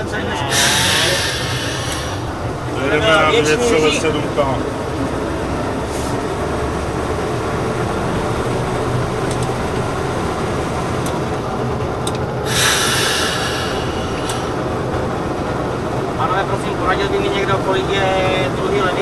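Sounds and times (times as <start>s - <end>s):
train rumbling on rails: 0.0s - 19.0s
burst of hissing: 0.5s - 2.6s, 12.4s - 14.6s.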